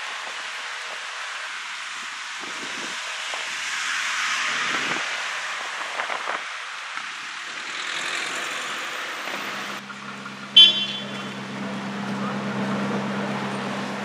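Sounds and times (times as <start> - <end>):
car passing: 0.0 - 14.0
low engine hum: 8.3 - 14.0
car horn toot: 10.5 - 11.6.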